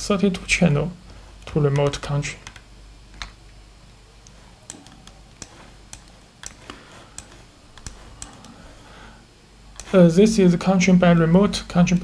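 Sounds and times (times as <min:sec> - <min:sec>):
faint low hum: 0:00.0 - 0:12.0
computer mouse clicks: 0:01.4 - 0:03.5, 0:04.2 - 0:08.6, 0:09.7 - 0:10.0.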